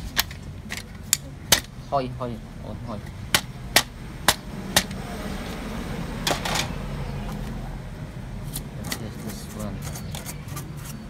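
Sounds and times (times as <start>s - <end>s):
printer parts clicking and knocking: 0.0s - 1.8s, 3.0s - 5.0s, 6.2s - 7.4s, 8.6s - 10.9s.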